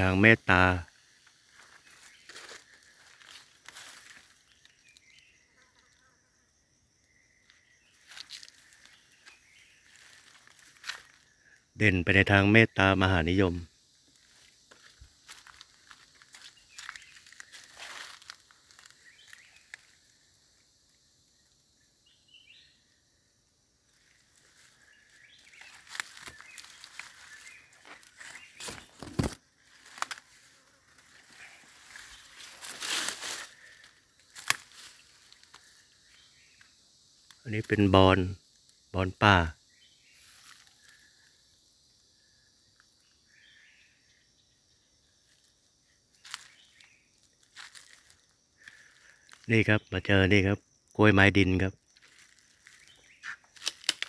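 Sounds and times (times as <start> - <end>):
footsteps in dry leaves: 1.4 - 4.7, 8.0 - 11.2, 14.1 - 19.9, 24.0 - 35.6, 46.1 - 49.4, 52.0 - 54.0
branches brushing past: 14.1 - 19.9, 24.0 - 35.6
twig snapping: 28.6 - 30.2, 34.3 - 35.6, 53.5 - 54.0.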